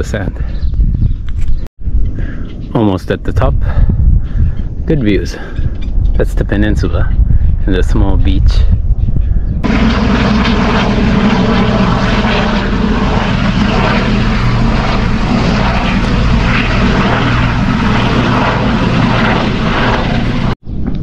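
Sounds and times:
propeller plane passing over: 9.6 - 20.6.

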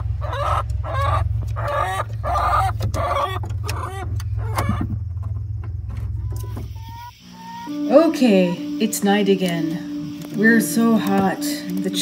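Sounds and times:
hen clucking: 0.0 - 5.4, 6.0 - 12.0
steady low hum: 0.0 - 12.0.

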